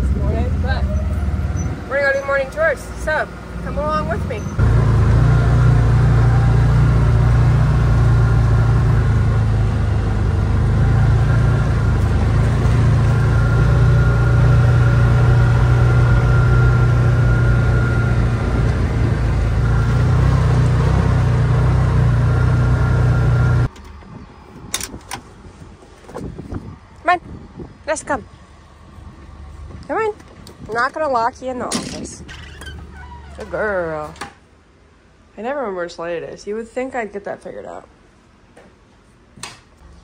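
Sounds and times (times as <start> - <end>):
vehicle engine and drivetrain drone: 0.0 - 31.1, 39.8 - 40.0.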